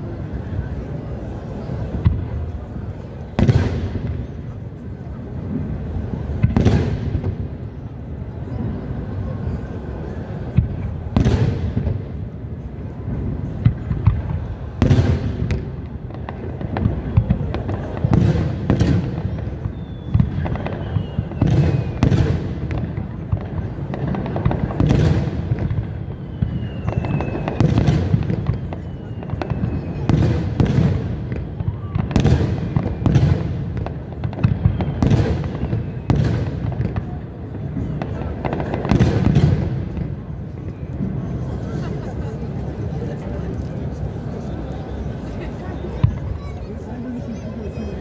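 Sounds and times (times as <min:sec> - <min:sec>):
firework falling whistles: 0:18.8 - 0:22.5, 0:24.7 - 0:37.0, 0:37.8 - 0:41.5.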